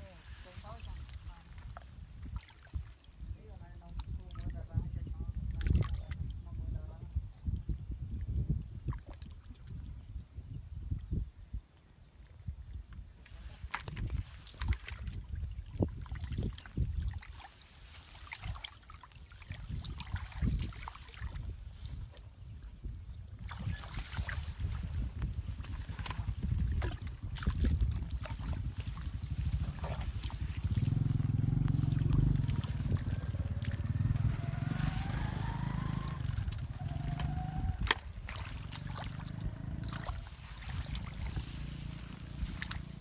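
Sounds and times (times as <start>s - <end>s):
splashing in muddy water: 0.0s - 7.1s, 8.7s - 10.3s, 13.1s - 22.6s, 23.3s - 43.0s
wind on microphone: 0.0s - 43.0s
low motor rumble: 24.6s - 43.0s.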